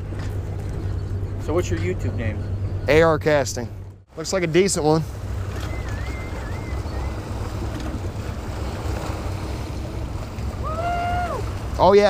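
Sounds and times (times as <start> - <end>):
waves lapping on rocky shore: 4.4 - 12.0
faint wavering high tone: 5.5 - 7.2.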